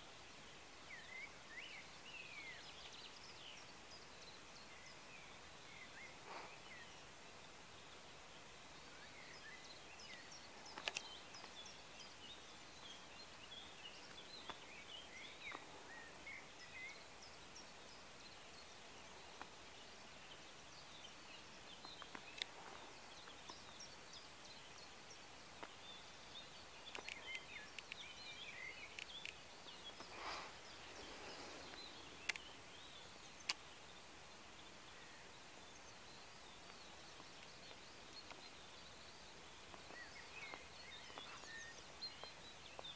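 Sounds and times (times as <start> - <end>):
birds chirping: 0.0 - 42.9
steady hiss: 0.0 - 42.9
sharp clicks: 10.0 - 11.5, 22.0 - 22.6, 26.8 - 28.2, 28.8 - 30.1, 31.7 - 32.6, 33.4 - 33.7.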